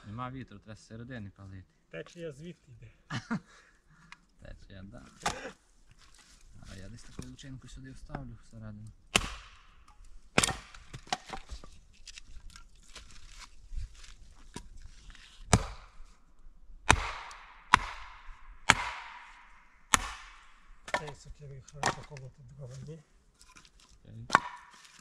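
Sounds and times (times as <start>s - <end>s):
wood splitting crackle: 5.0s - 7.4s, 9.1s - 25.0s
axe chopping wood: 5.2s - 5.6s, 9.1s - 11.6s, 15.5s - 16.0s, 16.8s - 22.2s, 24.3s - 25.0s.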